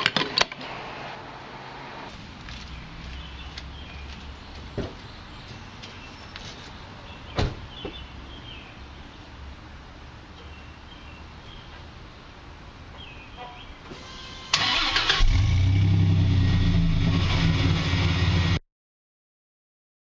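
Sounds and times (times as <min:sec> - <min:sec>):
car engine starting and running: 0:13.8 - 0:18.6.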